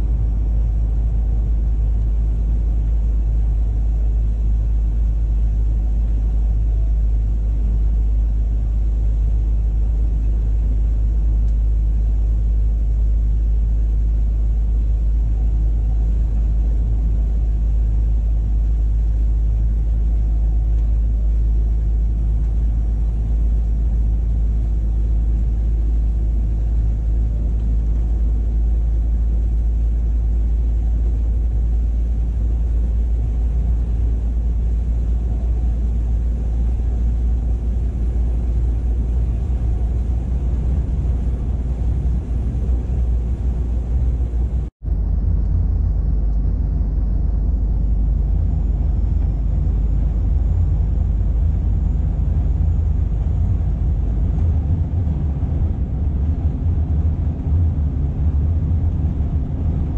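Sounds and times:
truck engine rumble: 0:00.0 - 0:59.9
road noise: 0:19.6 - 0:57.7.

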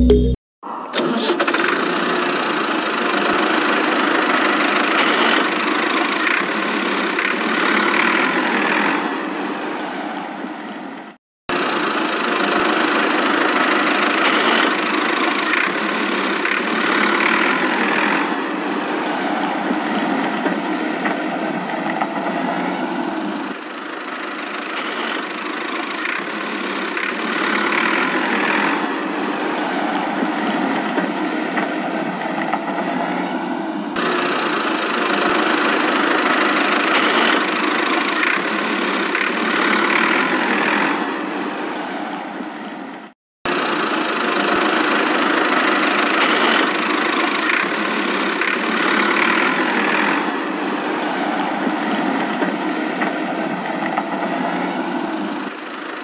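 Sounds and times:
model tractor engine running: 0:01.0 - 0:09.0, 0:11.5 - 0:18.4, 0:23.3 - 0:28.9, 0:34.0 - 0:41.0, 0:43.5 - 0:51.8, 0:54.8 - 0:56.0.

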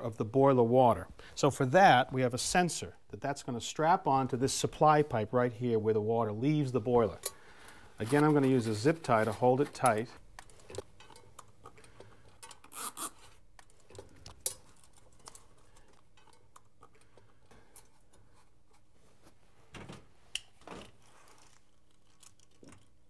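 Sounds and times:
zip tie clicks and rustles: 0:12.4 - 0:18.4, 0:20.3 - 0:23.0.

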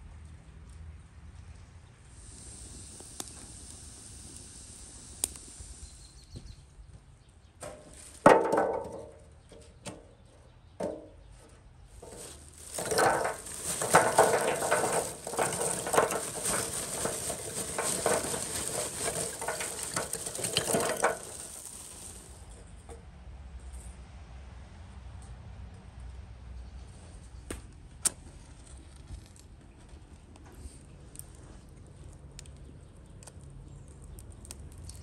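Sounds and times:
charcoal clattering into metal grill: 0:07.6 - 0:10.0, 0:12.0 - 0:22.7.

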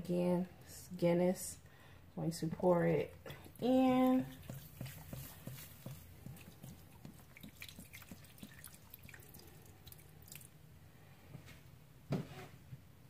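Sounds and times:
liquid pouring and splashing: 0:03.4 - 0:10.6.

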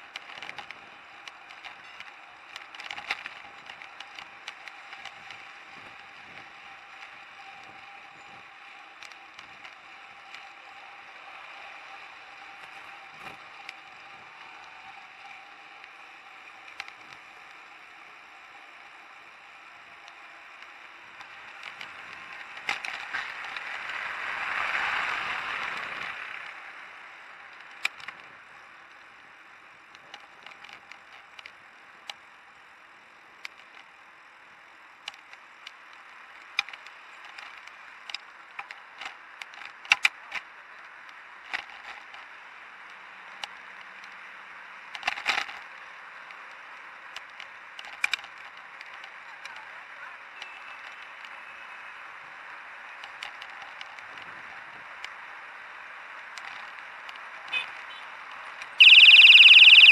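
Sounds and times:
bike clicks and rattles: 0:00.0 - 0:10.7, 0:18.5 - 0:24.1, 0:27.3 - 0:32.6, 0:33.3 - 0:44.3, 0:44.9 - 0:49.7, 0:52.9 - 0:55.3, 0:56.2 - 0:58.8.

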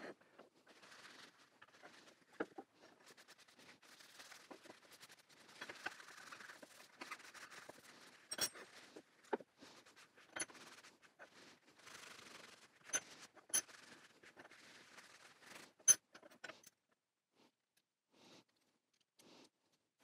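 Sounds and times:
cloth rag rubbing metal: 0:02.9 - 0:08.8, 0:09.7 - 0:15.9.

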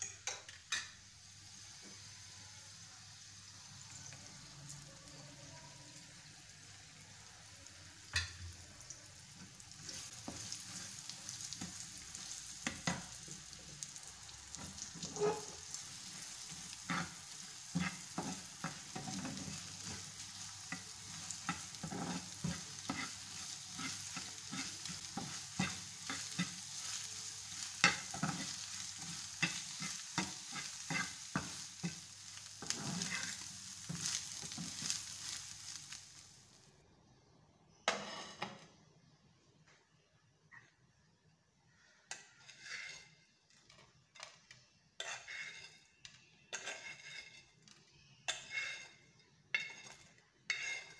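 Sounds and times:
food sizzling in oil: 0:00.0 - 0:36.8, 0:45.0 - 0:50.9
metal spatula scraping a pan: 0:09.4 - 0:36.0, 0:37.8 - 0:38.7, 0:42.1 - 0:50.9.

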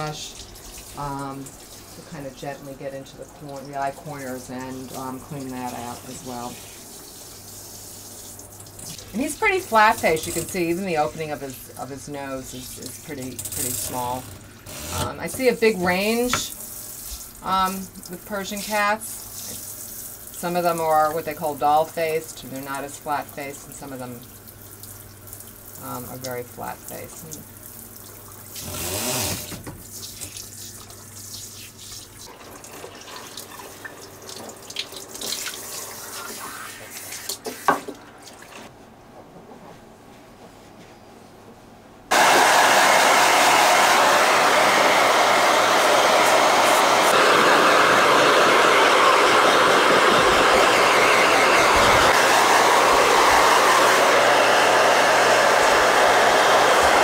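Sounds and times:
water dripping: 0:00.0 - 0:02.0, 0:03.0 - 0:09.2, 0:23.3 - 0:28.6, 0:29.8 - 0:36.1
sink sprayer running water: 0:00.0 - 0:38.7, 0:42.1 - 0:57.0
pet blow dryer running: 0:42.1 - 0:57.0.

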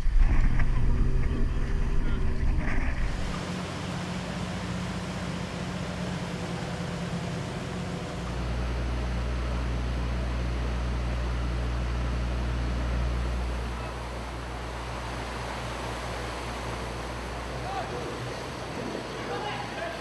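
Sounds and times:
deep loud rumble: 0:00.0 - 0:03.7
water noise: 0:00.0 - 0:09.3, 0:11.8 - 0:20.0
boat engines droning: 0:00.0 - 0:20.0
wind: 0:00.0 - 0:20.0.

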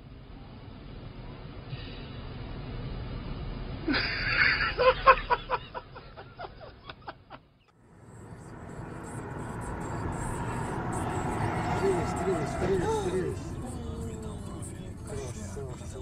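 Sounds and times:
road and engine noise inside car: 0:00.0 - 0:04.0, 0:07.7 - 0:16.0
person laughing: 0:03.9 - 0:07.3.

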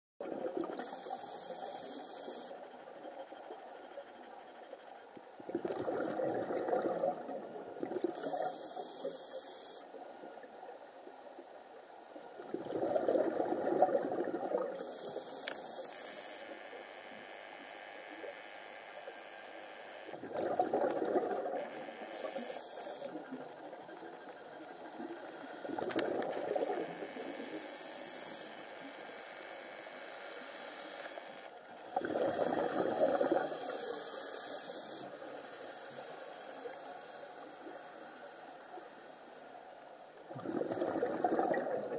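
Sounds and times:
regulator inhale hiss: 0:00.8 - 0:02.6, 0:08.2 - 0:09.9, 0:14.8 - 0:16.6, 0:22.0 - 0:23.2, 0:27.0 - 0:28.7, 0:31.9 - 0:38.4
exhaled bubbles rushing: 0:05.5 - 0:08.4, 0:12.5 - 0:14.8, 0:20.2 - 0:21.7, 0:25.6 - 0:27.1, 0:32.0 - 0:33.6, 0:40.3 - 0:41.9.

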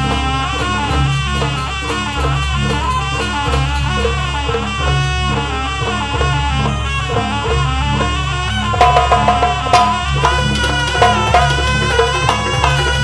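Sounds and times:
drums steady beat: 0:00.0 - 0:13.0
wind instrument melody: 0:00.0 - 0:13.0.

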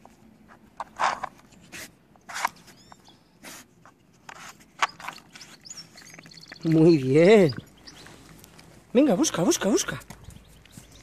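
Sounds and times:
dog sniffing: 0:01.6 - 0:02.7, 0:03.3 - 0:06.3.

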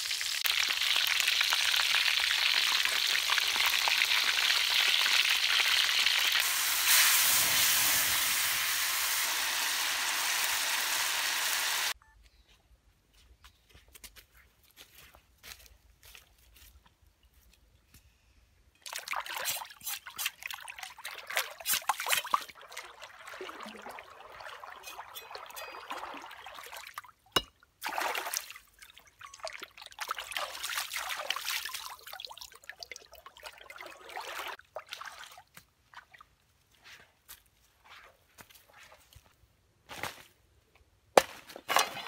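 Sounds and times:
water sloshing and splashing: 0:18.8 - 0:36.3.

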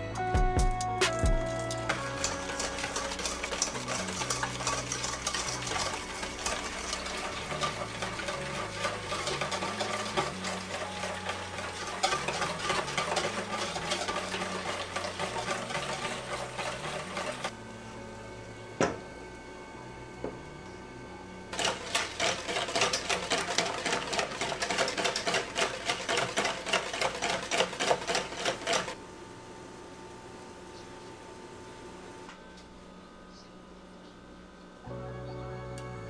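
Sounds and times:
wire whisk clinking in metal bowl: 0:02.1 - 0:17.5.

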